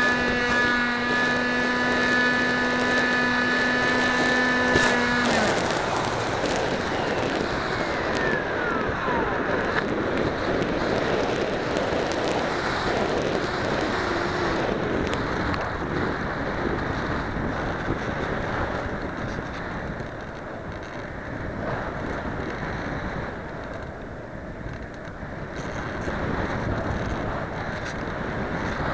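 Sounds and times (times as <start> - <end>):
faint whine sliding down: 0.0 - 15.7
wind rushing over microphone: 0.0 - 28.9.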